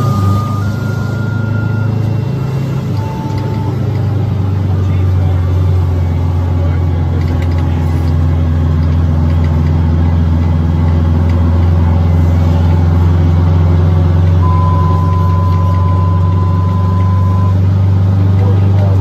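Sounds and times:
steady high tone: 0.0 - 6.2, 14.4 - 17.7
fire engine low drone: 0.0 - 19.0.

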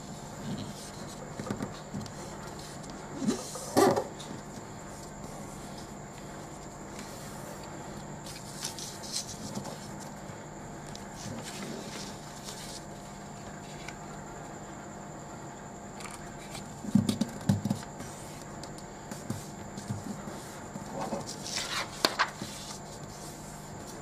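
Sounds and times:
faint steady hum: 0.0 - 24.0
paper rustling being folded: 4.2 - 10.2, 10.8 - 14.0, 19.8 - 24.0.

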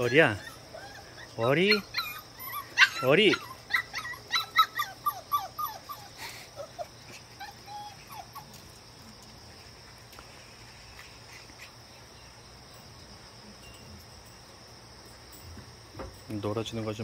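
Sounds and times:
puppy whimpers: 0.0 - 8.6
high-pitched insect chirring: 11.2 - 17.0.

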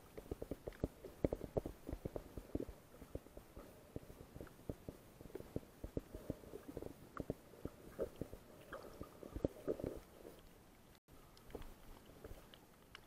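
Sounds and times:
muffled underwater knocks and clicks: 0.0 - 10.2.

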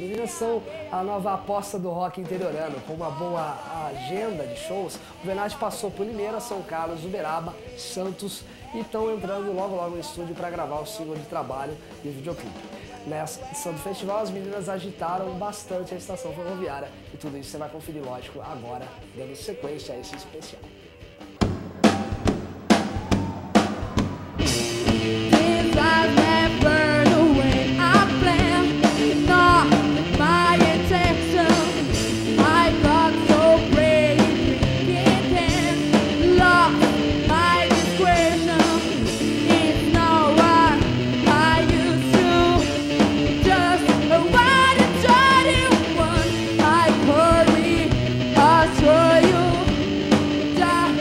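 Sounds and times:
rock band playing: 0.0 - 51.0
drum hits: 21.4 - 31.1
woman singing: 25.2 - 49.8, 50.5 - 51.0.

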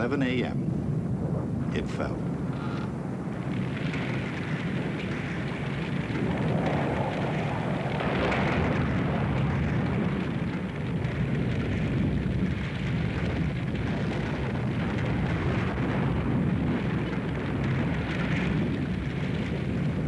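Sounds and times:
rumbling crash noise: 1.2 - 20.0.

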